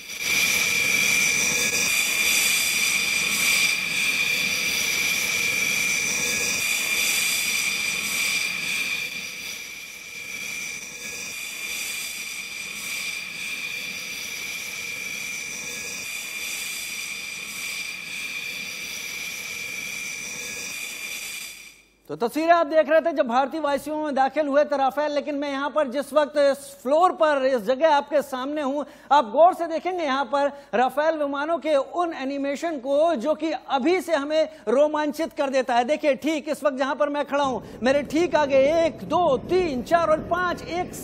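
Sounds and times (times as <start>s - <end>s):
jet engines whining: 0.0s - 21.4s.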